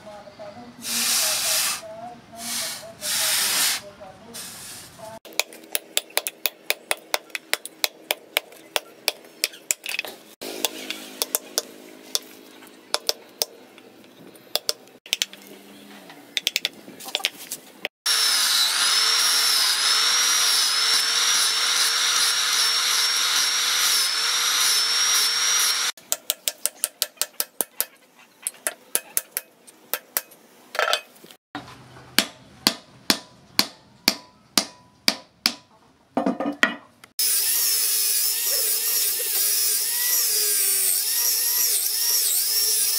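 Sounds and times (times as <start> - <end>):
hammer tapping: 10.6 - 12.3, 12.9 - 13.5, 32.2 - 35.7
angle grinder whining: 18.1 - 26.0, 37.2 - 42.9.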